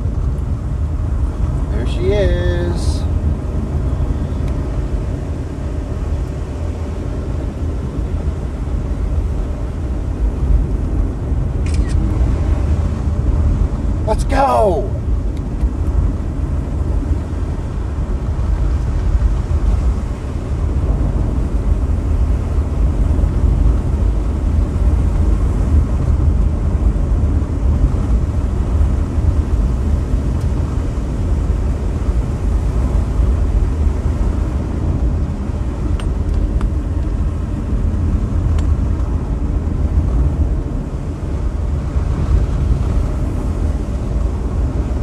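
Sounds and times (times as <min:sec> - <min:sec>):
car driving on wet dirt: 0:15.1 - 0:45.0.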